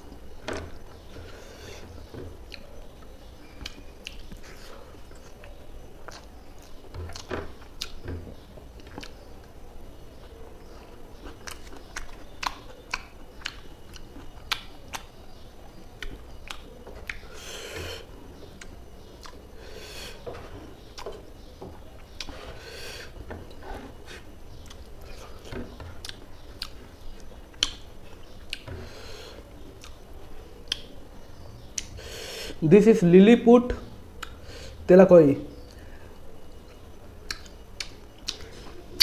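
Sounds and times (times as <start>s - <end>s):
close chewing with wet mouth clicks: 2.5s - 4.4s, 5.1s - 8.0s, 8.8s - 9.2s, 11.2s - 17.4s, 18.4s - 19.5s, 26.0s - 28.6s, 36.7s - 38.6s.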